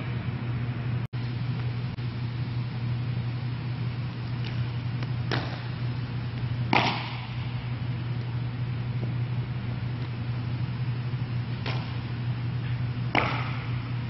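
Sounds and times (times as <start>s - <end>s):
steady low hum: 0.0s - 14.0s
baseball smacking into glove: 6.7s - 7.4s, 13.1s - 13.7s.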